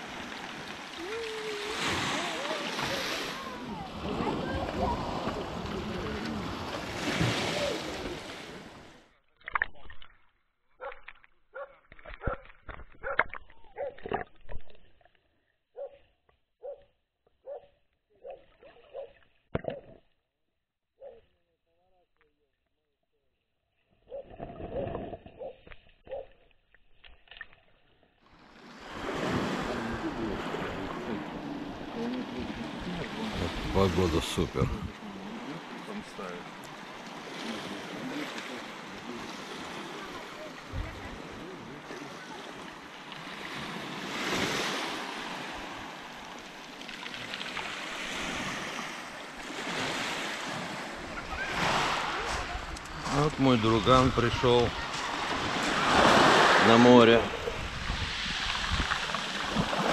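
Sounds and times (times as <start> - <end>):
waves washing onto pebble beach: 0.0 - 9.0, 28.4 - 59.9
wind: 0.0 - 59.9.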